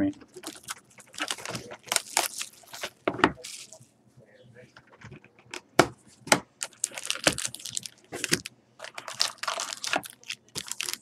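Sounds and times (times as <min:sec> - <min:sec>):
foil wrapper tearing and crinkling: 0:00.3 - 0:03.8, 0:06.6 - 0:11.0.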